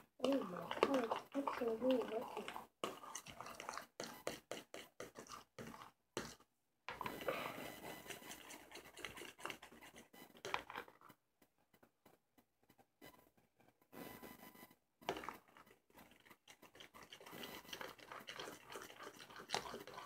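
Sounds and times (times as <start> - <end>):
utensil scraping a bowl: 0.0 - 6.4, 7.0 - 11.0, 15.1 - 20.0.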